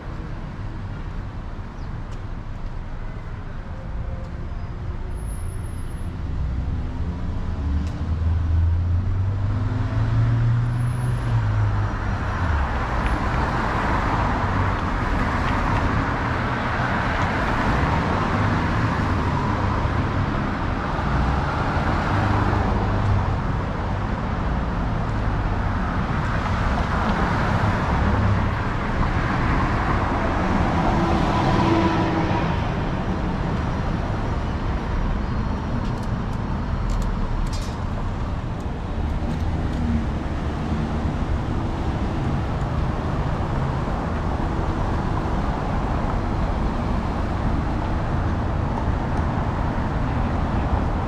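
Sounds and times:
vehicle engine rumble: 32.4s - 51.0s.

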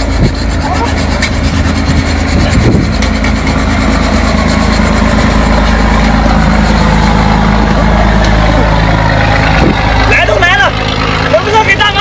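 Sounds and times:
hand saw rasping through shell: 0.0s - 7.3s
engine idling: 0.0s - 12.0s.

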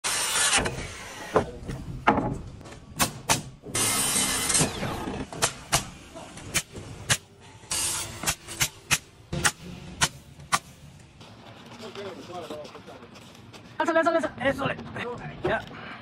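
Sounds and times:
circular saw cutting wood: 0.0s - 1.4s, 3.8s - 5.0s
nail gun firing: 3.0s - 5.9s.

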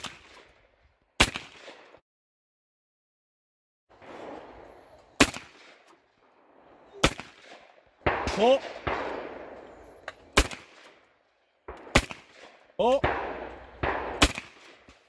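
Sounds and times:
shotgun blasts: 0.0s - 0.6s, 1.2s - 2.0s, 4.0s - 5.9s, 6.9s - 15.0s.

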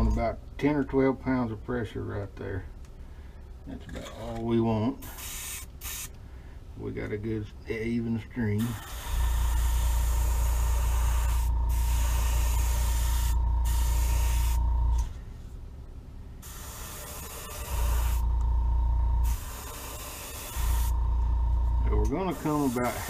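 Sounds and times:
airbrush hissing: 5.0s - 6.2s, 8.6s - 15.1s, 16.4s - 23.0s.

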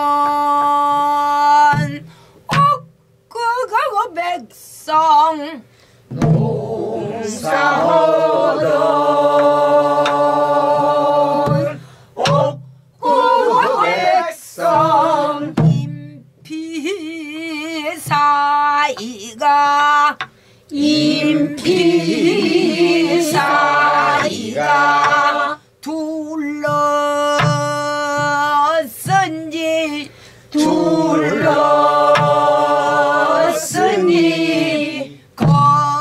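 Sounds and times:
woman singing with wide vibrato: 0.0s - 36.0s
stick striking barrel drum: 1.7s - 3.0s, 6.1s - 13.9s, 14.6s - 16.0s, 18.0s - 19.2s, 21.6s - 25.5s, 26.6s - 29.5s, 30.6s - 34.2s, 35.4s - 36.0s.

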